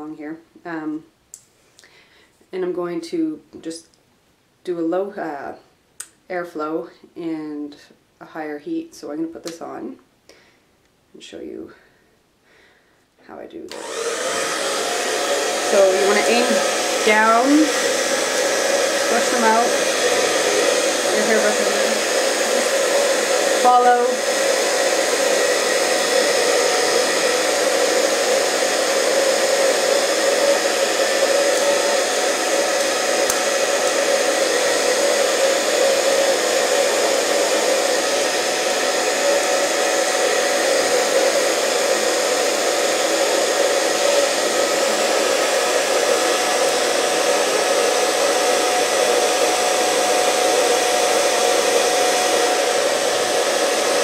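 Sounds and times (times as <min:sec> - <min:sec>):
hair dryer running: 0:13.7 - 0:54.0.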